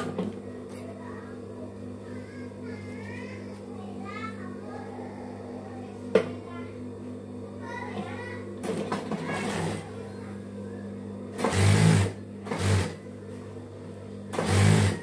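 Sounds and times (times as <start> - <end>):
sewing machine stitching: 11.4 - 13.0, 14.3 - 15.0.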